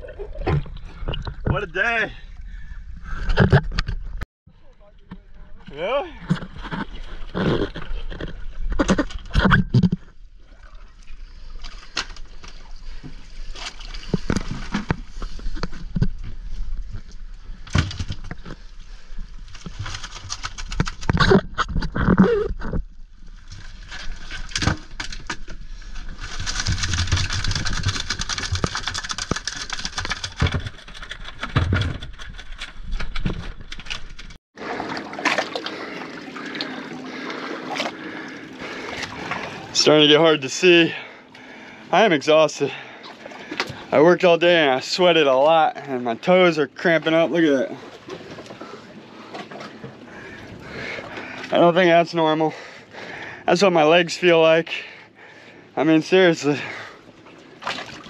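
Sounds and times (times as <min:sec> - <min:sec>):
underwater knocks and bumps: 0:00.0 - 0:01.6, 0:03.1 - 0:04.2, 0:06.2 - 0:10.2
steady water sound: 0:00.0 - 0:31.6, 0:32.3 - 0:58.0.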